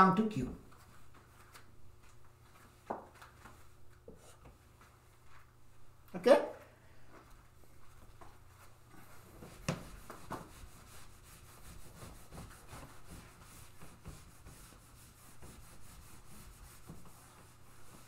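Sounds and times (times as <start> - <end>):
eraser rubbing on whiteboard: 9.3 - 18.0.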